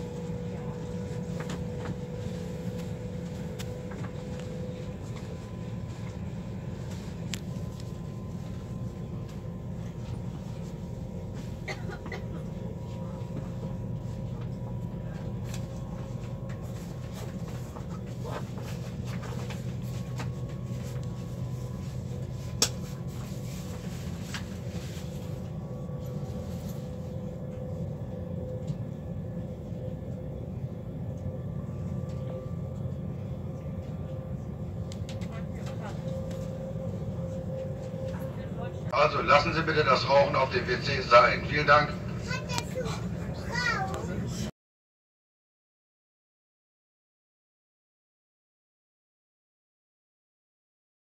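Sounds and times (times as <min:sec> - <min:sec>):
train running gear rumble: 0:00.0 - 0:44.5.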